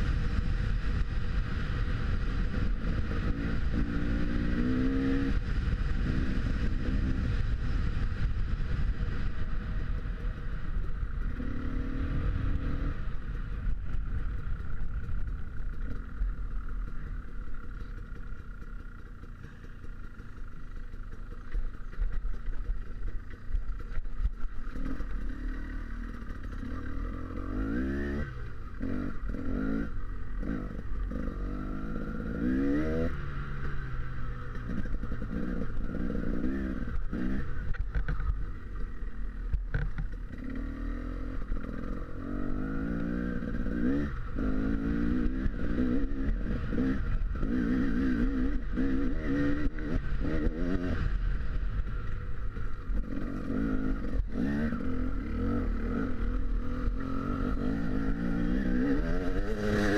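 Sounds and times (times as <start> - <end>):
motorcycle engine revving: 0.0 - 59.9
clatter from bumpy ground: 13.7 - 27.0.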